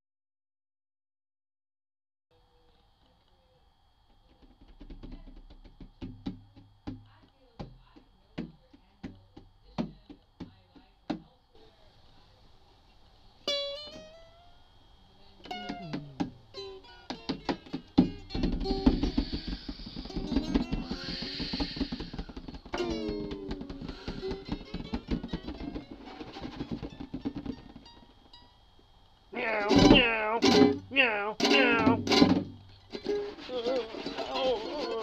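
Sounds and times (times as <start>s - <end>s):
guitar plucked notes: 13.4s - 14.7s, 15.4s - 19.2s, 22.7s - 28.6s, 29.4s - 35.0s.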